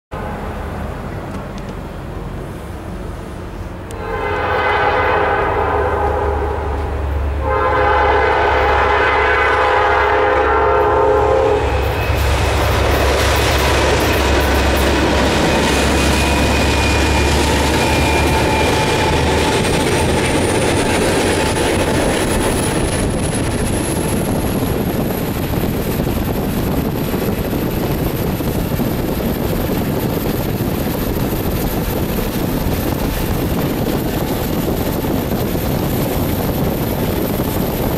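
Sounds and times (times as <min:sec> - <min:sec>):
diesel locomotive rumble: 0:00.1 - 0:37.9
train horn: 0:03.9 - 0:12.8
train wheels clattering on rails: 0:11.7 - 0:37.9.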